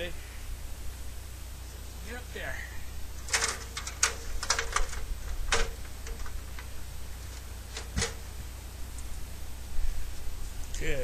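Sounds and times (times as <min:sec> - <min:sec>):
ladder knocking: 0:03.2 - 0:06.7, 0:07.3 - 0:08.3.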